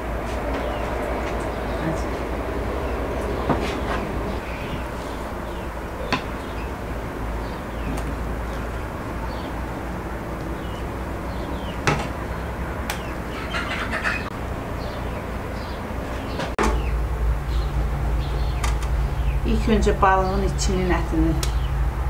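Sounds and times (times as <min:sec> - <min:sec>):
birds chirping: 0:00.0 - 0:22.0
low background hum: 0:00.0 - 0:22.0.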